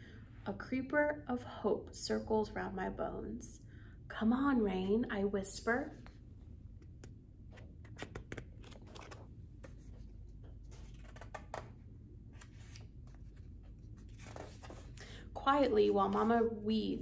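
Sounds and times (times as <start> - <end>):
book pages turning: 6.8 - 15.0.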